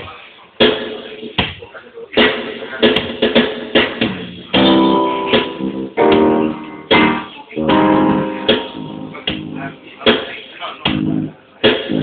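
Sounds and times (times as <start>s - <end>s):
guitar strummed in chords: 4.6s - 10.1s.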